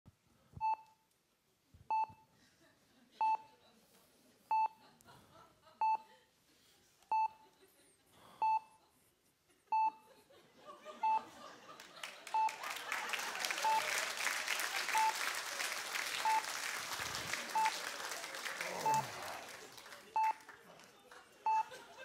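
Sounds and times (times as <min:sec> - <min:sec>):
patient monitor beeping: 0:08.4 - 0:08.8, 0:11.0 - 0:11.3, 0:12.3 - 0:12.6, 0:13.6 - 0:13.9, 0:14.9 - 0:15.2, 0:16.2 - 0:16.5, 0:17.5 - 0:17.8, 0:18.7 - 0:19.2, 0:21.5 - 0:21.8
audience applause: 0:11.7 - 0:22.0.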